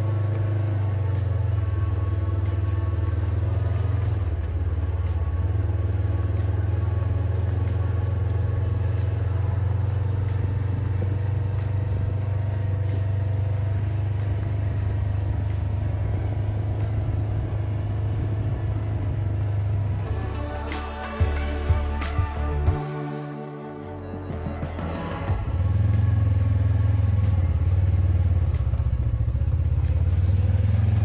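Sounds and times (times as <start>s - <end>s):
tyres on gravel: 0.0s - 22.7s
utv engine droning: 0.0s - 22.9s, 23.8s - 31.0s.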